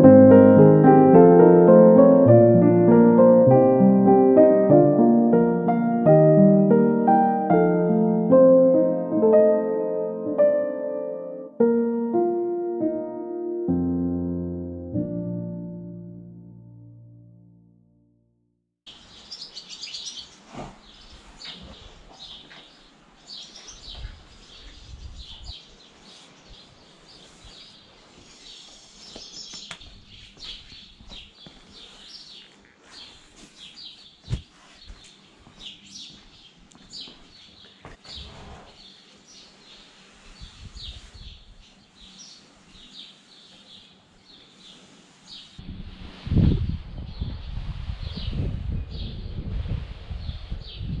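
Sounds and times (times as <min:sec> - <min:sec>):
small birds chirping: 0:18.9 - 0:45.6.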